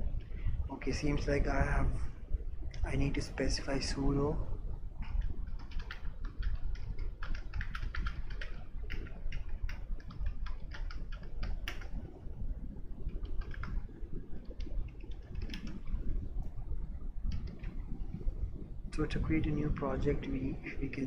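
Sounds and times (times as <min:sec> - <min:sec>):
computer keyboard typing: 0:05.0 - 0:12.2, 0:12.9 - 0:16.0, 0:17.3 - 0:17.8.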